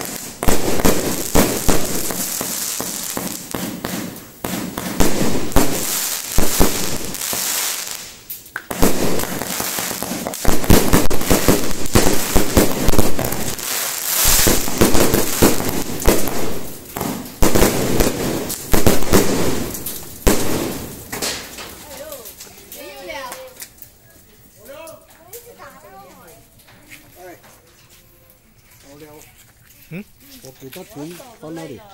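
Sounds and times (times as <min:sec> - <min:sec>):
fireworks bangs: 0:00.0 - 0:22.2
fireworks crackling: 0:00.0 - 0:31.9.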